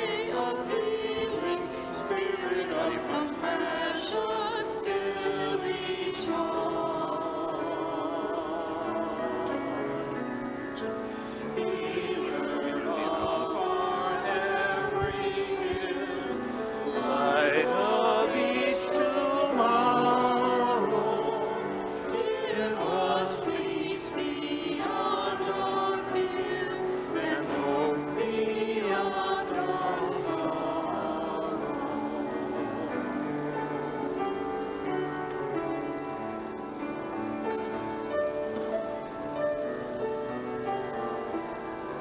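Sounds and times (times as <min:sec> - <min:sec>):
choir singing a hymn: 0:00.0 - 0:42.0
sustained instrumental accompaniment: 0:00.0 - 0:42.0.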